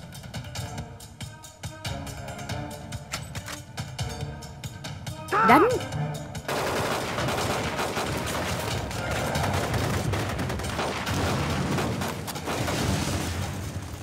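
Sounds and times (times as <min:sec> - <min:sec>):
dense gunfire: 0:06.5 - 0:14.0
explosions: 0:08.6 - 0:14.0.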